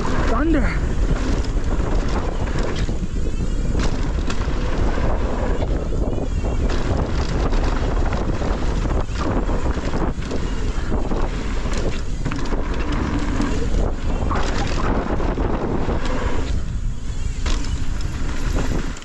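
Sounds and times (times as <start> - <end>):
wind buffeting microphone: 0.0 - 19.0
rattles and knocks: 17.4 - 19.0.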